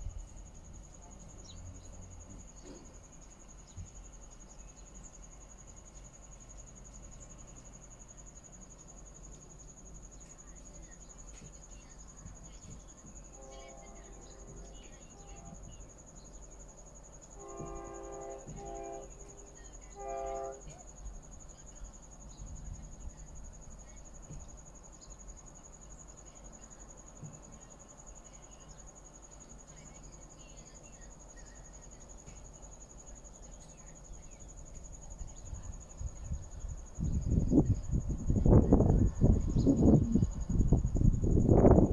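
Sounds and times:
high-pitched insect drone: 0.1 - 41.9
train air horn blasts: 13.3 - 15.7, 17.4 - 20.8.

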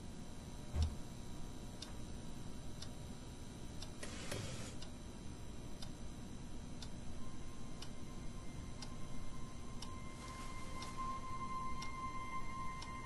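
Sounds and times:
low room hum: 0.0 - 13.0
clock ticking: 5.8 - 6.0, 6.8 - 13.0.

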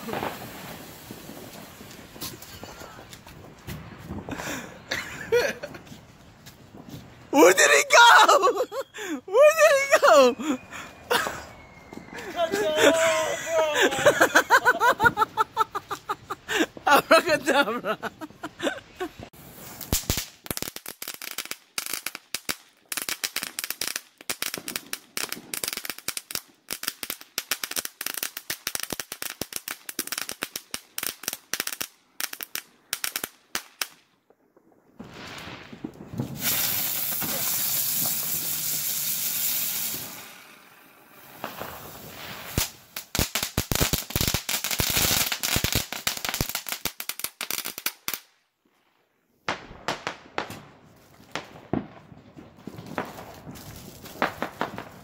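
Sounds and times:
firework hissing: 0.0 - 3.4, 19.2 - 21.4, 35.1 - 46.9
firework crackling pops: 0.0 - 5.0, 19.2 - 48.4, 49.4 - 55.0.

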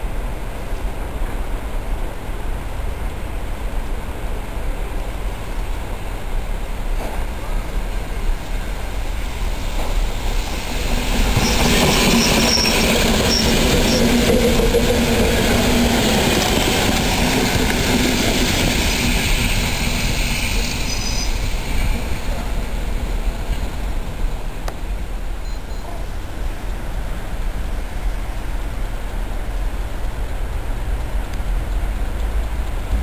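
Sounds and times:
train motors humming: 1.0 - 25.4
wheel-on-rail noise: 5.2 - 33.0
high wheel squeals: 9.0 - 23.9.

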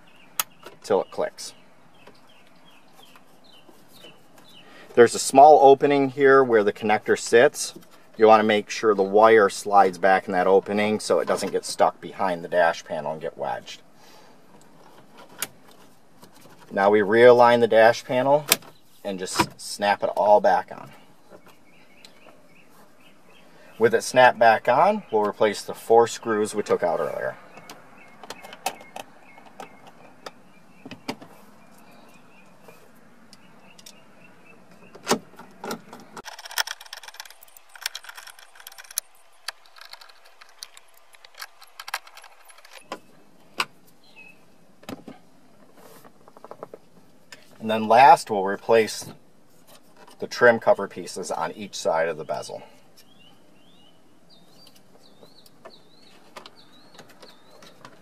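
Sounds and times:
songbird chirping: 0.0 - 58.0
plastic clicks: 34.9 - 43.0.

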